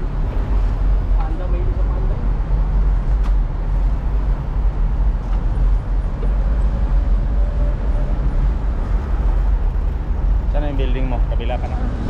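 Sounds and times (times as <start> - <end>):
city traffic: 0.0 - 12.0.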